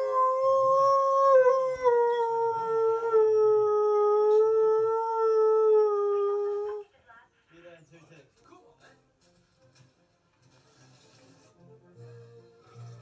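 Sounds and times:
dog howling: 0:00.0 - 0:06.8.

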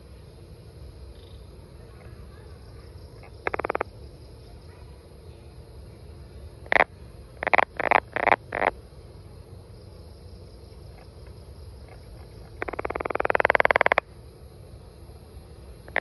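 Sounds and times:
frog calling: 0:03.2 - 0:04.0, 0:06.6 - 0:08.8, 0:10.9 - 0:14.2, 0:15.8 - 0:16.0.

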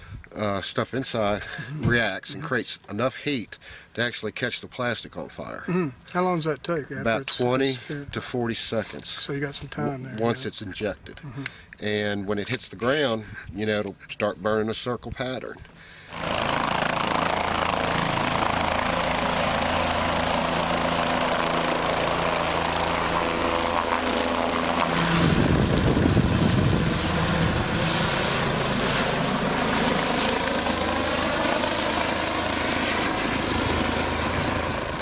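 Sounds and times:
helicopter flying overhead: 0:16.1 - 0:35.0.

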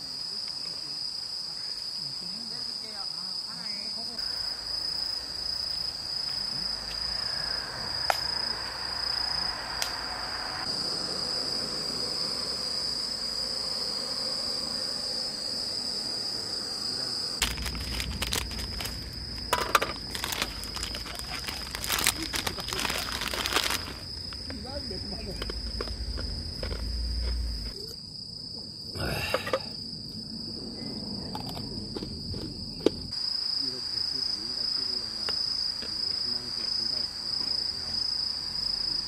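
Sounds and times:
crickets chirring: 0:00.0 - 0:39.0
plastic bag crinkling: 0:17.4 - 0:24.4.

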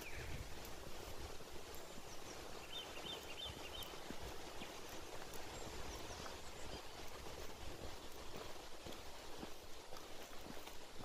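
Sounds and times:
bird calling: 0:00.0 - 0:00.4, 0:02.0 - 0:07.0
footsteps crunching on gravel: 0:00.0 - 0:11.0.

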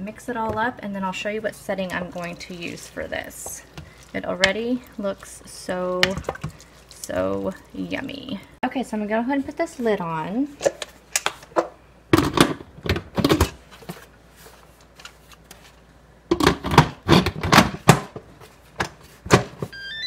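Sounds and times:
rising electronic beeps: 0:19.7 - 0:20.0.

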